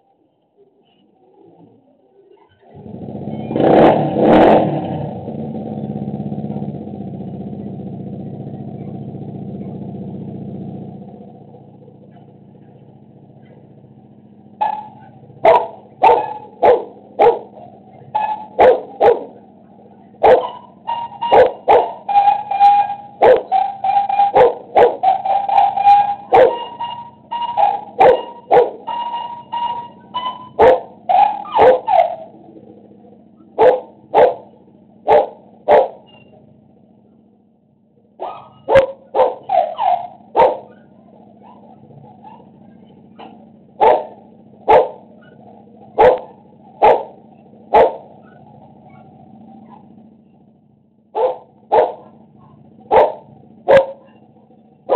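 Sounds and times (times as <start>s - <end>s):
low hum: 2.8s - 54.9s
dog barking: 14.6s - 19.5s, 20.1s - 32.3s, 33.5s - 36.3s, 38.2s - 49.9s, 51.1s - 54.3s.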